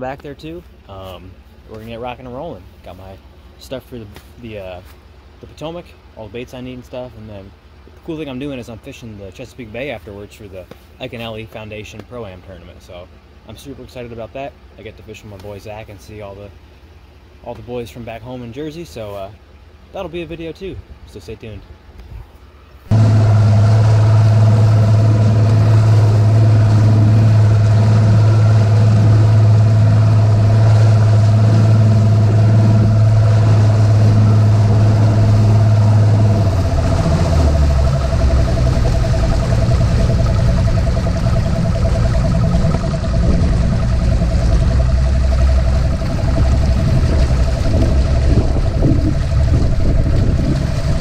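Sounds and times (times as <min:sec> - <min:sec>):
outboard motor droning: 0:00.0 - 0:20.5, 0:22.8 - 0:51.0
thin steady whine: 0:22.3 - 0:51.0.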